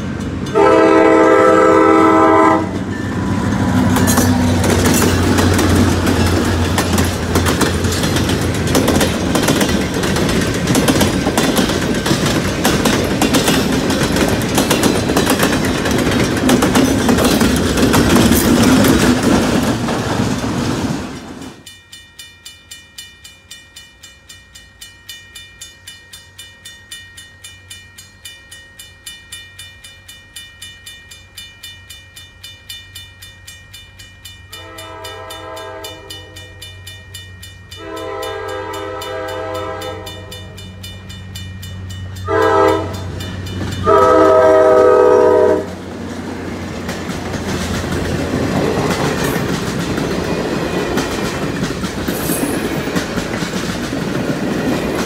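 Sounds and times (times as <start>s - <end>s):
crossing bell ringing: 0.0s - 19.2s, 21.1s - 55.0s
diesel train passing: 0.0s - 55.0s
locomotive air horn blasts: 0.5s - 2.8s, 34.5s - 36.6s, 37.8s - 40.5s, 42.3s - 43.0s, 43.8s - 45.8s.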